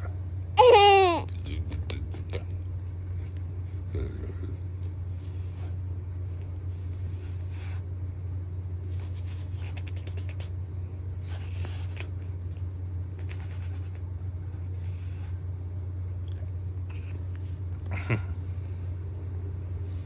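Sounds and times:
steady low hum: 0:00.0 - 0:20.0
kiss smacks: 0:09.7 - 0:10.6.

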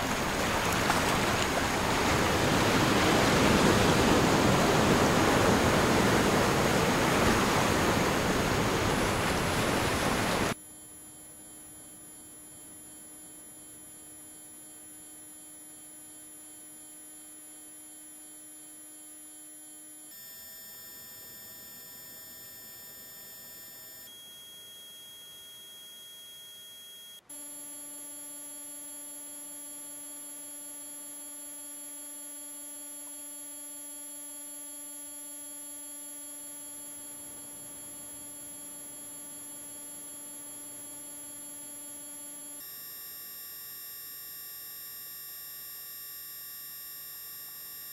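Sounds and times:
ocean wave noise: 0:00.0 - 0:10.6
electronic sine tones: 0:00.0 - 0:47.9.

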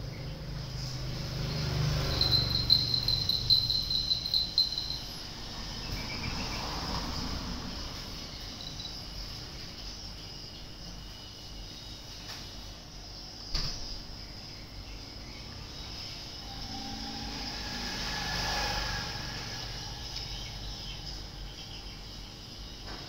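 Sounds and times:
insect trilling: 0:00.6 - 0:07.2, 0:15.6 - 0:21.8
faint high hum: 0:14.1 - 0:23.0.

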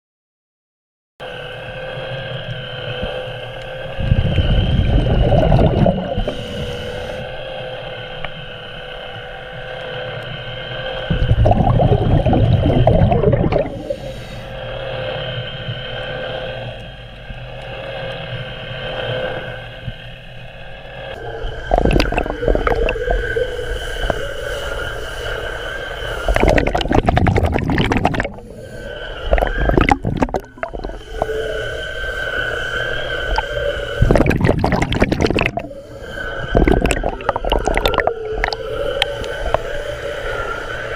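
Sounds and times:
low bubbling bursts: 0:03.9 - 0:07.2, 0:11.1 - 0:14.3, 0:21.2 - 0:24.2, 0:26.2 - 0:31.6, 0:33.3 - 0:39.7
spinning brush whine: 0:25.5 - 0:40.6.

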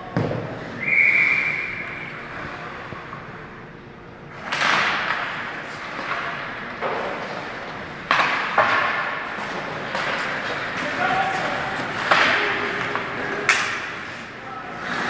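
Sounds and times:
puck and sticks banging boards: 0:00.1 - 0:00.6, 0:04.3 - 0:15.0
skates scraping ice: 0:04.3 - 0:15.0.

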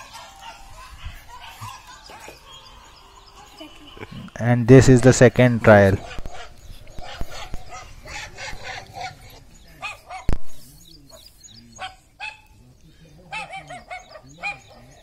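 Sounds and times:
dog barking through phone speaker: 0:05.9 - 0:10.4, 0:11.8 - 0:12.5, 0:13.3 - 0:15.0.

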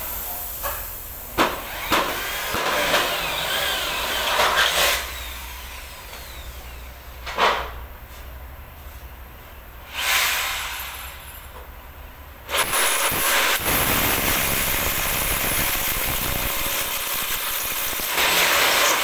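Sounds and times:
power drill whirring: 0:01.6 - 0:07.0, 0:12.5 - 0:19.0.

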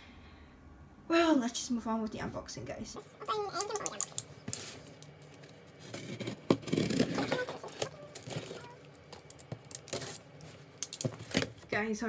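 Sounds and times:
cardboard box scraping and rustling: 0:05.8 - 0:08.8.

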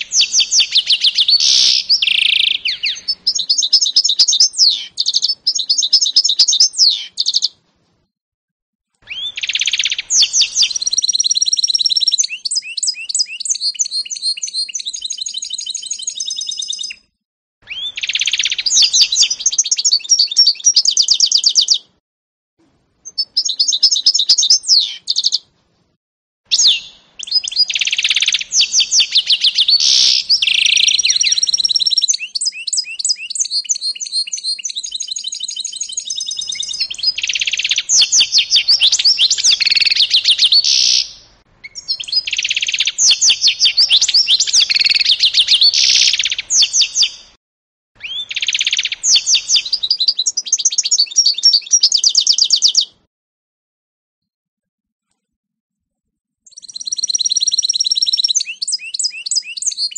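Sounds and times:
bird singing rapid trills: 0:00.0 - 0:07.4, 0:09.1 - 0:17.1, 0:26.6 - 0:47.2, 0:48.0 - 0:52.9, 0:56.5 - 0:59.9.

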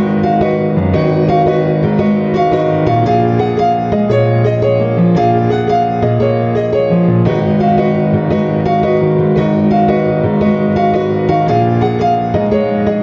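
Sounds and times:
gentle piano music: 0:00.0 - 0:13.0.

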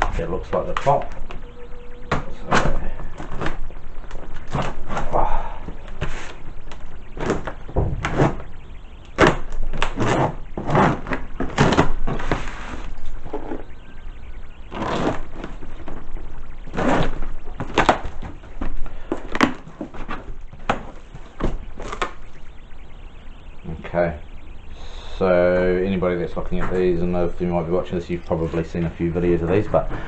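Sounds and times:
cardboard rustling: 0:16.6 - 0:22.2.

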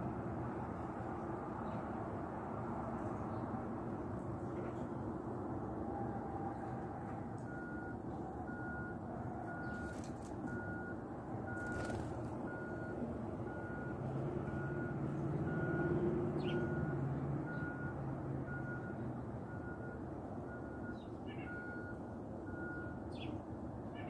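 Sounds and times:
reversing alarm beeping: 0:07.5 - 0:15.9, 0:16.5 - 0:16.9, 0:17.5 - 0:23.1.

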